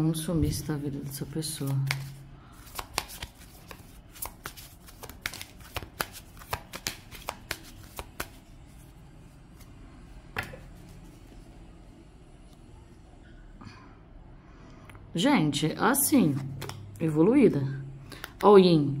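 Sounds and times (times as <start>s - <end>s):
cards being shuffled by hand: 1.5s - 9.0s, 16.3s - 16.8s.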